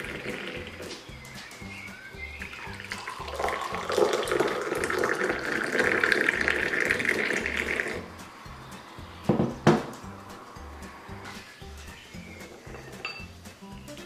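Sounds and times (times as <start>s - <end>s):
tea pouring into a glass: 2.5s - 8.0s.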